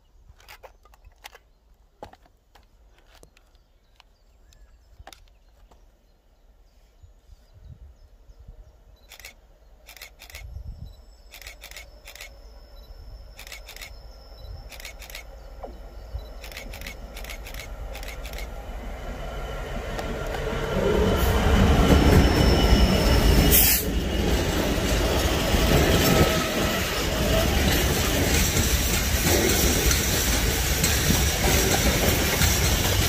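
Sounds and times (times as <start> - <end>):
sharp clicks: 0.3 - 5.8, 9.0 - 10.6, 11.3 - 12.4, 13.3 - 14.0, 14.6 - 15.3, 16.2 - 18.5
rail noise: 8.5 - 33.0.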